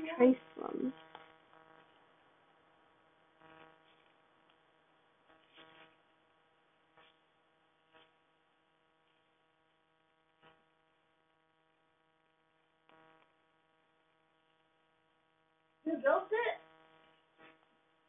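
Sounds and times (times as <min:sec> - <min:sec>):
faint electrical hum: 0:00.0 - 0:18.0
faint ticks: 0:00.5 - 0:01.9.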